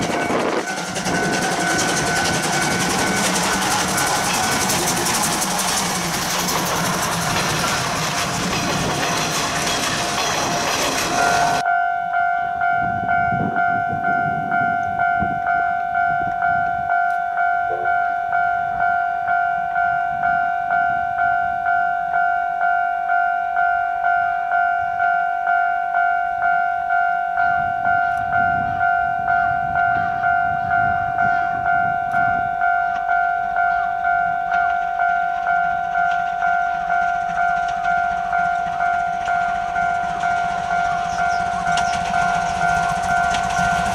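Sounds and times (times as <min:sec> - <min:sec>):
steam locomotive rumble: 0:00.0 - 0:11.7, 0:27.4 - 0:43.9
level crossing warning bell: 0:00.0 - 0:43.9
passing train rush: 0:00.0 - 0:43.9.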